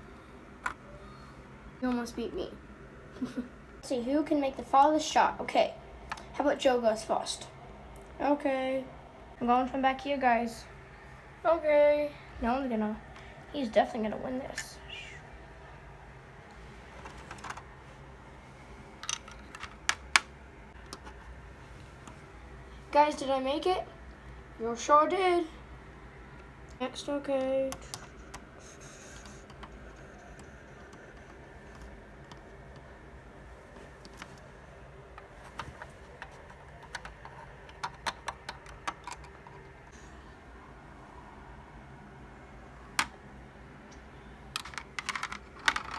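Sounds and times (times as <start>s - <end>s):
plastic toy bricks clicking: 36.8s - 39.5s, 44.6s - 45.9s
lego pieces clicking: 44.6s - 45.9s.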